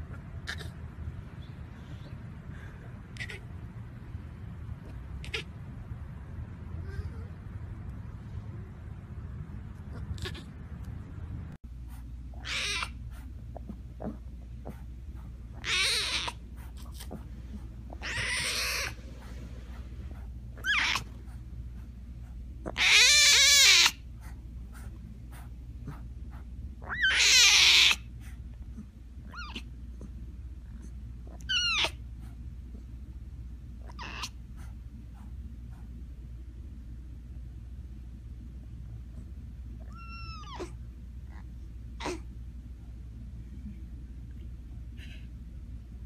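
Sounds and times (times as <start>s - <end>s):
steady low hum: 0.0s - 46.0s
cubs meow-like cries: 12.4s - 13.0s, 15.6s - 16.4s, 18.0s - 19.0s, 20.6s - 21.1s, 22.7s - 24.0s, 26.8s - 28.1s, 31.3s - 32.0s, 33.8s - 34.4s, 39.8s - 40.8s.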